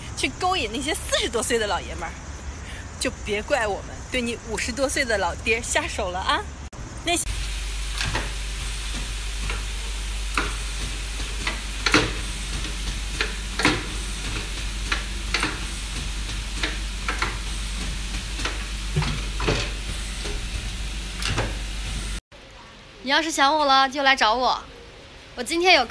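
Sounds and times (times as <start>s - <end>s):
low hum: 7.3s - 22.2s
printing machine clacks: 7.3s - 22.2s
steady hiss: 7.3s - 22.2s.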